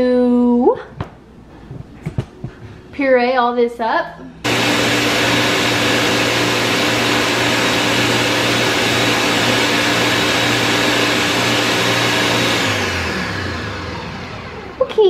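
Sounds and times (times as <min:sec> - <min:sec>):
blender motor whirring: 0:04.4 - 0:15.0.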